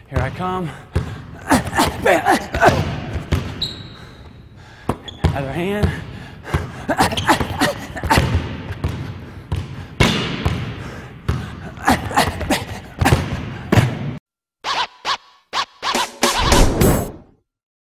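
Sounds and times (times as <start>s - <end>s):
basketball bouncing on gym floor: 0.0s - 14.2s.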